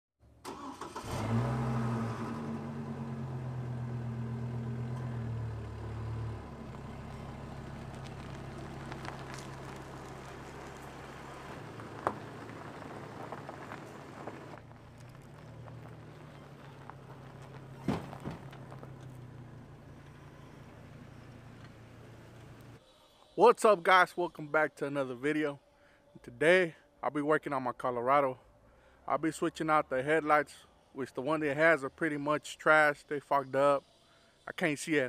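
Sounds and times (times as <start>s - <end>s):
pickup engine idling: 2.0s - 22.8s.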